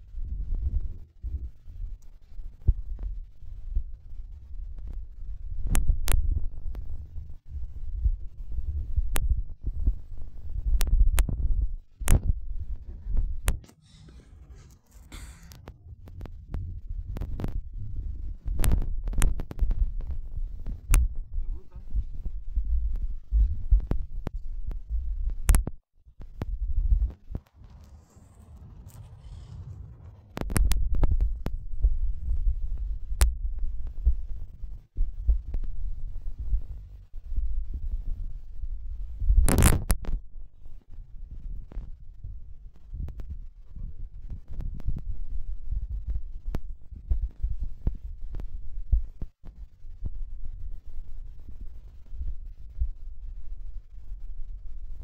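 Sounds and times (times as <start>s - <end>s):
low rumbling noise: 0.0s - 39.4s
wind buffeting microphone: 0.0s - 55.0s.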